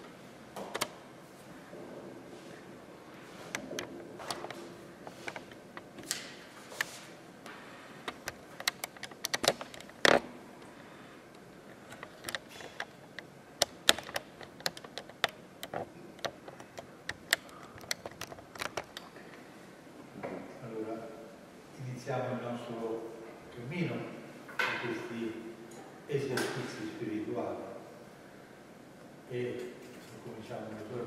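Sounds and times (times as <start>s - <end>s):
irregular clicks and taps: 8.0s - 10.2s, 11.3s - 19.1s.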